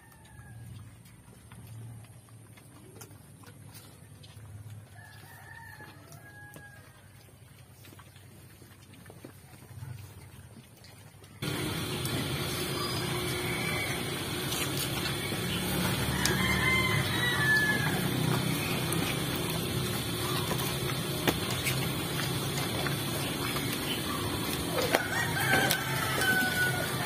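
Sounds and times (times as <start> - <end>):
rooster crowing: 5.0 - 6.9, 11.4 - 21.5, 23.9 - 27.0
chickens clucking: 11.4 - 27.0
steady low hum: 11.4 - 27.0.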